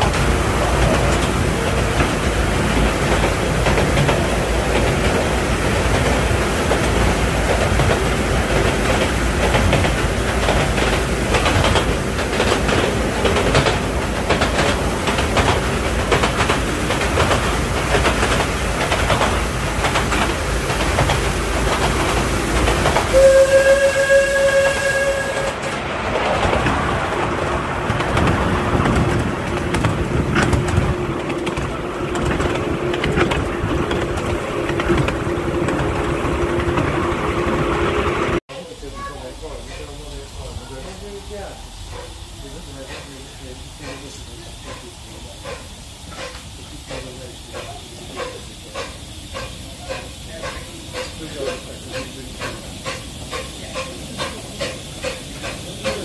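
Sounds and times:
miniature train wheels clattering: 5.9s - 23.1s, 41.9s - 56.0s
steam whistle blast: 23.1s - 25.7s.

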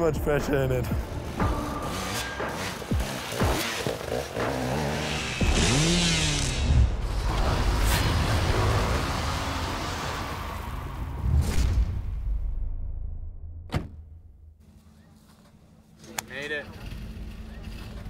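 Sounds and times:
dirt bike engine revving: 1.2s - 10.7s
whoosh with engine rev: 1.6s - 11.7s.

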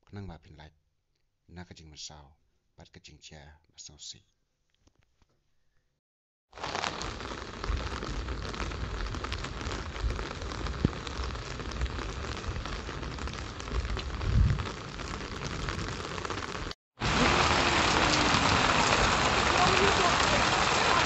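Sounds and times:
heavy rain hissing: 6.6s - 21.0s
raindrop ticks on microphone: 6.6s - 21.0s
low rumbles on microphone: 6.9s - 15.8s.

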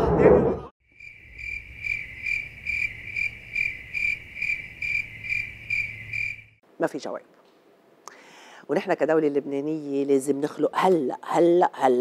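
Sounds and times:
crickets chirping: 0.8s - 6.6s.

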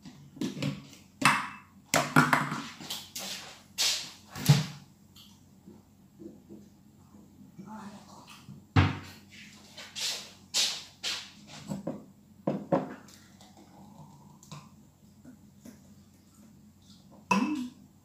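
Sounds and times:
kitchen knocks and clatters: 11.7s - 13.1s.

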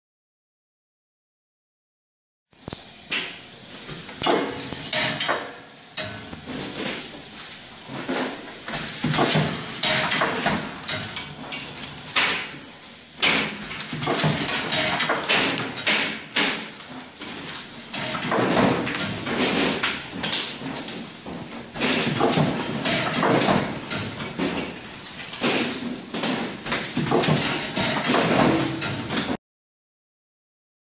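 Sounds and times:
machine metallic clunks: 4.2s - 6.6s, 8.1s - 12.6s, 13.2s - 16.8s, 17.9s - 20.5s, 21.8s - 24.8s, 25.4s - 29.4s.

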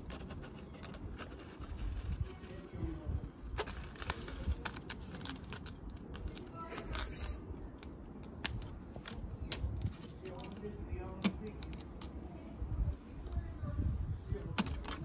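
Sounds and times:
cat claws scratching wood: 0.0s - 2.7s
leaf rustling: 3.4s - 7.4s.

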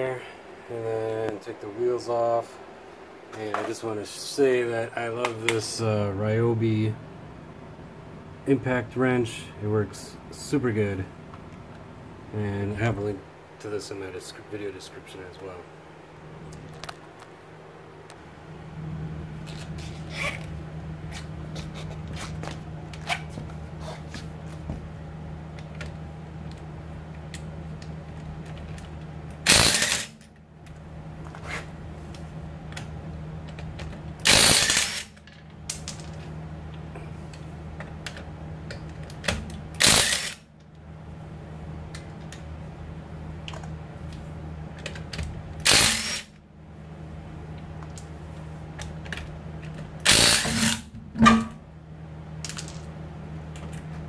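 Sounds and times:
low hum: 44.8s - 54.0s.

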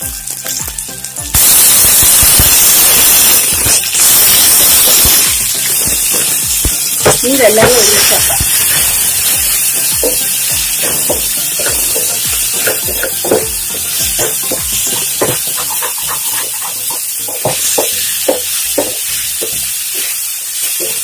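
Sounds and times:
stir-fry sizzling: 0.0s - 21.0s
spatula scraping a frying pan: 7.1s - 21.0s.

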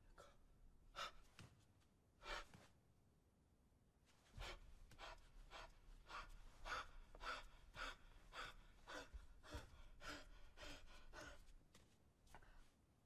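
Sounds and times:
man breathing hard: 0.2s - 1.4s, 4.4s - 11.6s.

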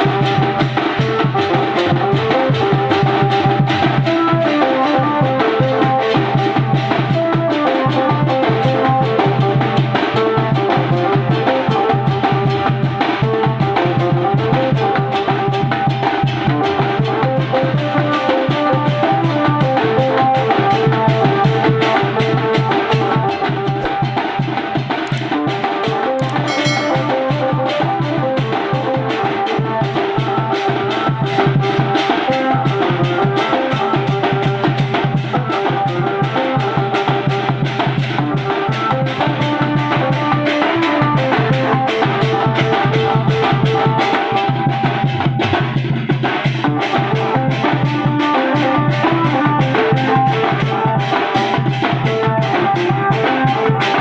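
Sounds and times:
drums and cymbals beating: 0.0s - 54.0s
melody of held notes: 26.3s - 28.0s
metal cymbal beating: 26.4s - 27.9s.

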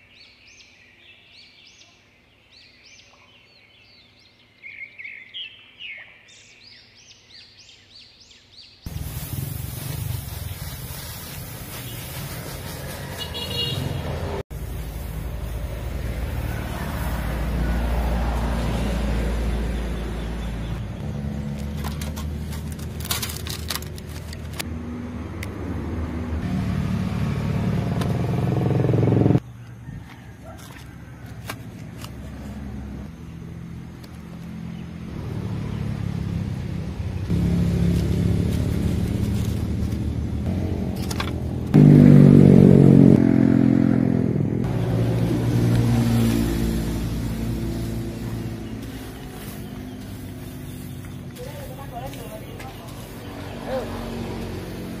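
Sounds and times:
vehicle engine revving: 12.5s - 23.8s, 24.5s - 29.4s, 32.2s - 55.0s.

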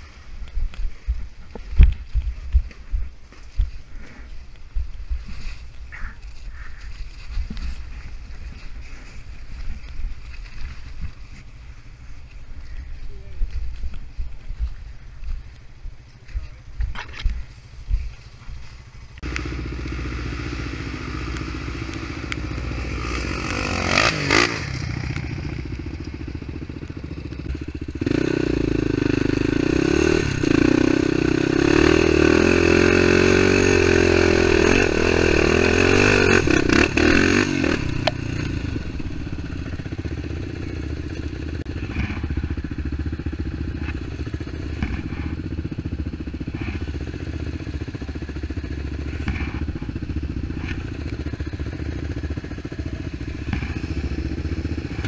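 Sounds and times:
quad bike engine running: 0.0s - 55.0s.

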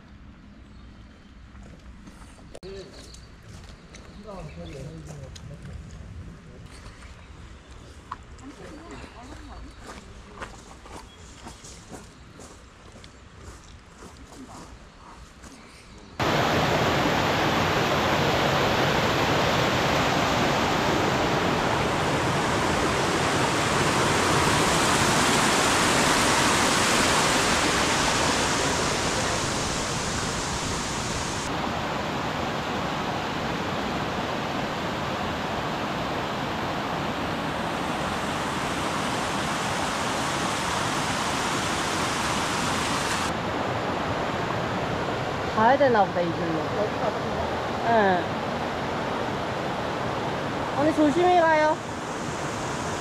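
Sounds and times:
stream water rushing: 16.2s - 53.0s.

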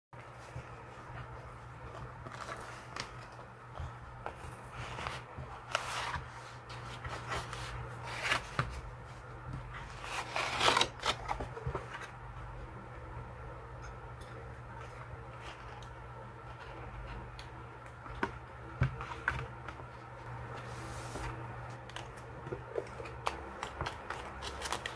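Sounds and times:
low steady hum: 0.2s - 24.9s
paper and leather rustling: 0.3s - 12.1s.

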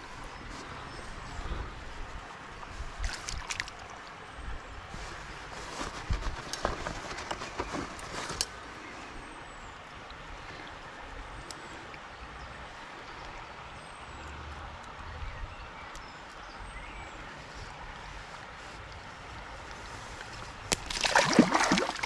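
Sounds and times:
shallow river water running: 0.0s - 22.0s
knocks and splashes in a net: 20.7s - 22.0s.

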